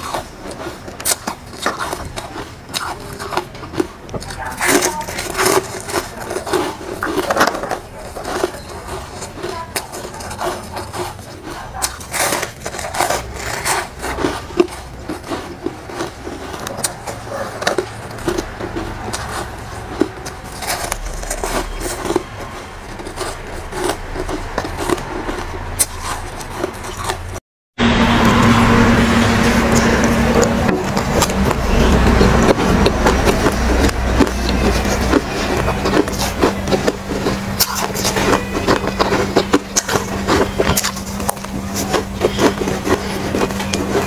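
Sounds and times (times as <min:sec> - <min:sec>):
ice crunching while chewed: 0:00.0 - 0:27.4, 0:28.0 - 0:44.0.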